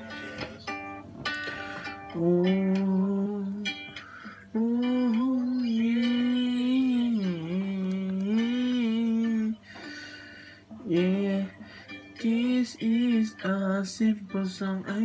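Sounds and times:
man singing wordless melody: 0:02.1 - 0:09.8, 0:10.7 - 0:15.0.

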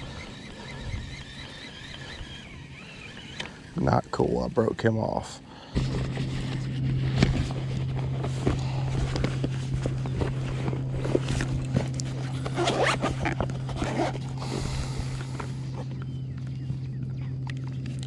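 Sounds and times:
steady low hum: 0:00.0 - 0:18.0
rummaging through fabric bag: 0:05.8 - 0:15.9
crinkling with clicks: 0:06.2 - 0:14.4, 0:15.2 - 0:18.0.

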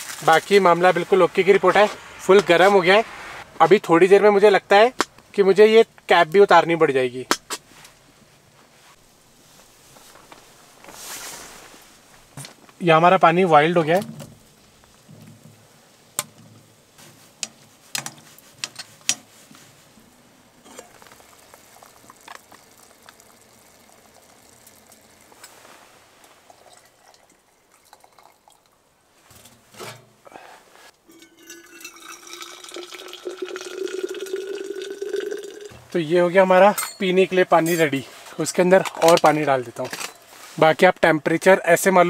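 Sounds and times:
water pouring into flask: 0:20.8 - 0:28.8, 0:31.1 - 0:35.8.

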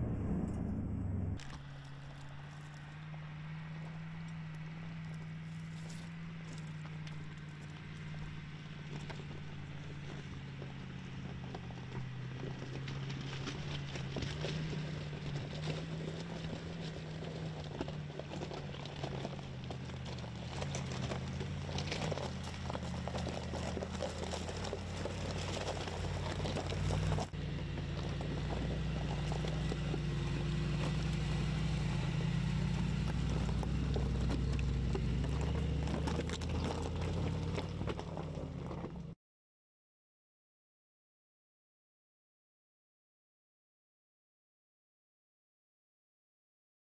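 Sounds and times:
car engine running at low revs: 0:00.0 - 0:39.2
tyres crunching over gravel: 0:01.4 - 0:39.2.

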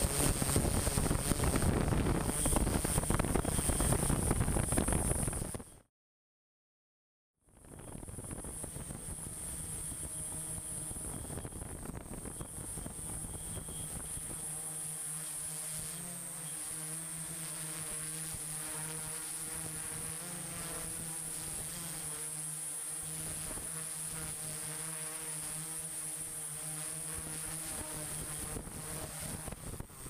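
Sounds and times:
electric motors buzzing whine: 0:00.0 - 0:05.8, 0:07.5 - 0:30.0
thin high whistle: 0:10.0 - 0:14.4.

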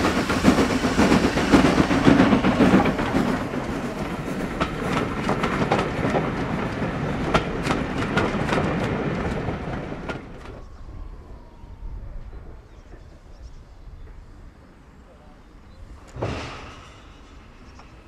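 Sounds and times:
train wheels clicking over rail joints: 0:00.0 - 0:10.6, 0:16.0 - 0:18.0.

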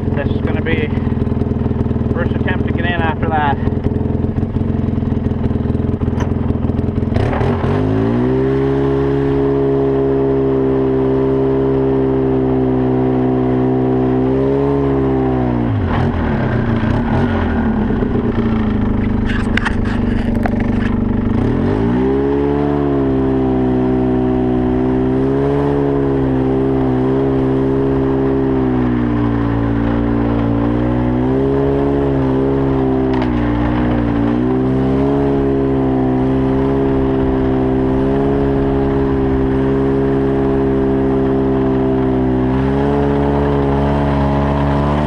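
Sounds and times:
atv engine running under load: 0:00.0 - 0:45.0
short scrapes and clicks: 0:19.0 - 0:21.0.

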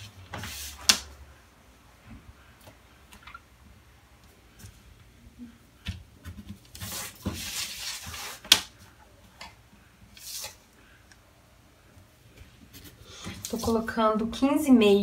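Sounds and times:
paper rustling and sliding: 0:00.0 - 0:01.1, 0:06.6 - 0:08.7, 0:10.1 - 0:10.6.

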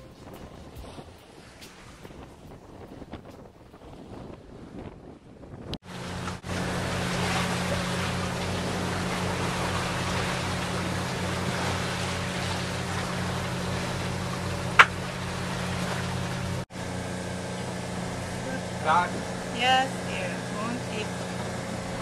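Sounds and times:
boat motor humming: 0:00.0 - 0:22.0
wind: 0:00.0 - 0:22.0
water rushing past hull: 0:05.8 - 0:22.0.

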